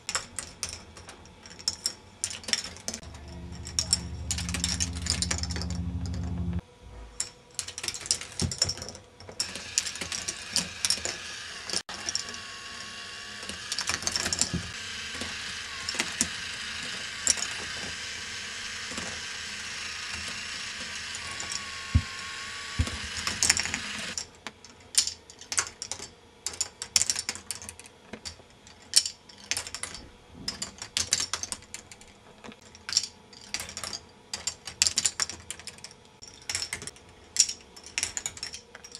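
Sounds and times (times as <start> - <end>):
steady rattling: 3.0 - 6.6
steady low hum: 3.0 - 7.4.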